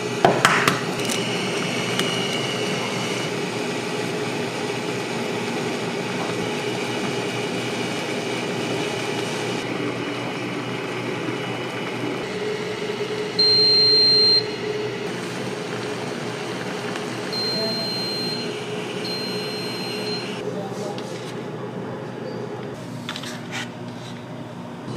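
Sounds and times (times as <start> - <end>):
broth boiling: 0.0 - 20.4
cooker rushing hum: 0.0 - 20.6, 21.5 - 24.9
cooker beeps: 1.0 - 3.4, 12.2 - 15.1, 17.3 - 20.4.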